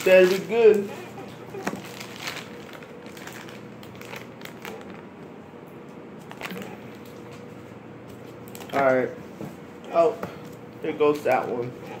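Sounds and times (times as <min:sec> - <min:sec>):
plastic wrapper crinkling: 0:00.0 - 0:01.0, 0:01.6 - 0:05.3, 0:06.2 - 0:07.4.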